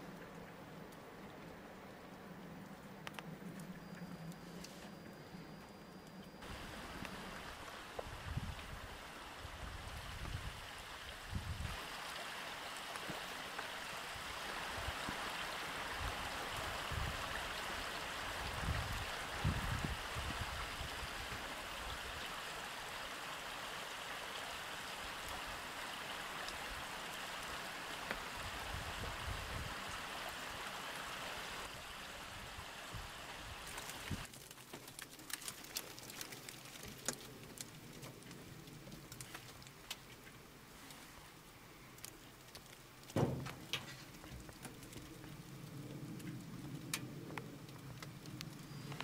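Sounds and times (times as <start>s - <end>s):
running water rushing: 6.4s - 34.3s.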